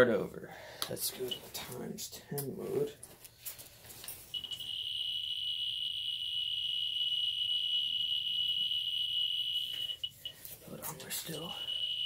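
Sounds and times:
high-pitched meter tone: 4.3s - 12.0s.

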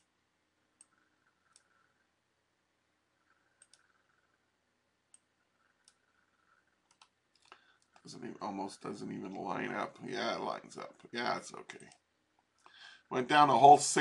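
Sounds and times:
faint computer mouse clicks: 3.3s - 4.0s, 6.8s - 8.1s.

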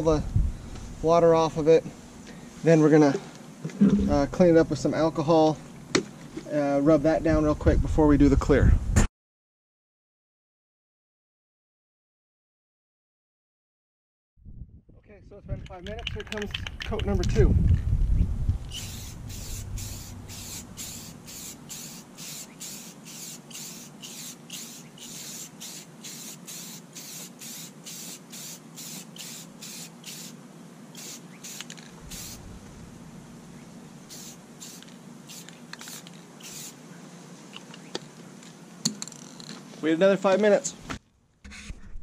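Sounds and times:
spray can hissing in bursts: 18.7s - 32.5s, 34.1s - 36.8s.

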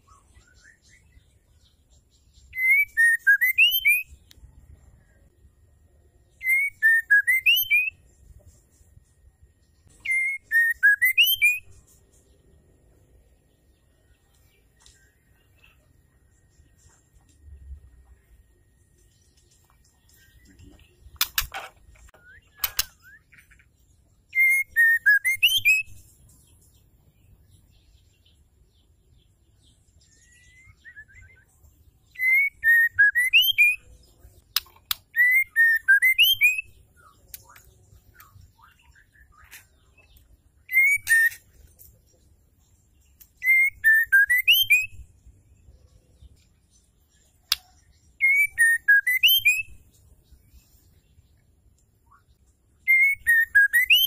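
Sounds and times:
bird singing whistled phrase: 2.5s - 4.2s, 6.4s - 8.0s, 10.0s - 11.7s, 24.3s - 26.0s, 30.2s - 31.5s, 32.1s - 33.8s, 35.1s - 36.8s, 40.7s - 41.4s, 43.4s - 45.0s, 48.2s - 49.8s, 52.9s - 54.0s
sharp clicks: 21.1s - 23.0s, 34.5s - 35.1s
high thin bird twitter: 30.0s - 46.5s.

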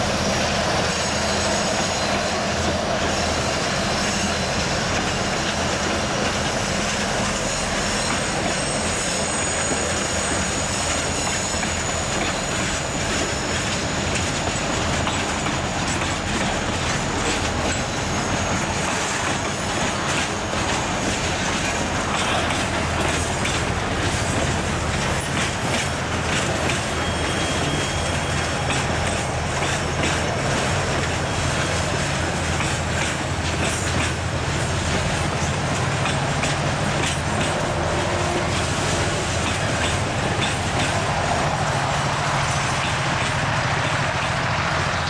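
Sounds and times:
clickety-clack over rail joints: 0.0s - 45.0s
train wheels rumbling on rail: 0.0s - 45.0s
thin wheel squeal: 0.1s - 5.2s, 5.8s - 30.2s.

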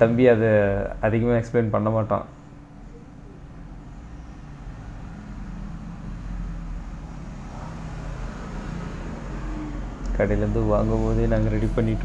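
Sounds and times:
faint hum: 0.0s - 7.3s.

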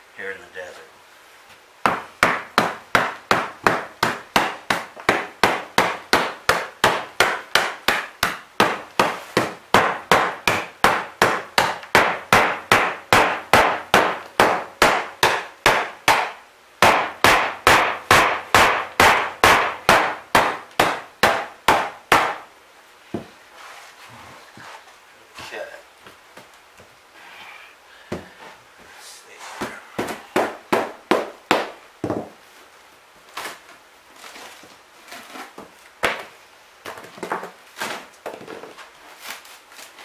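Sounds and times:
hammer striking wooden subfloor: 1.9s - 22.4s.

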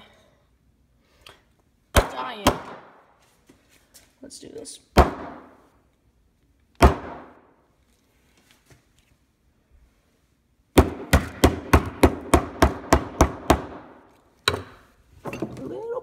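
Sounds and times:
hammer striking phone on concrete: 10.8s - 13.9s.

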